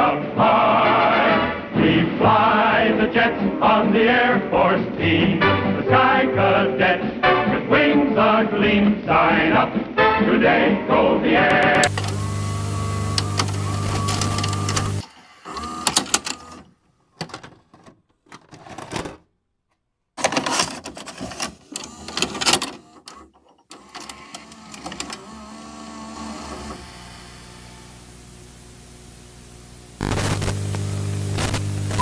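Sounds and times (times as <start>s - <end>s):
tape transport clicks and clunks: 11.5s - 19.3s, 20.2s - 27.6s
vcr motor hum: 11.6s - 16.7s, 21.2s - 32.0s.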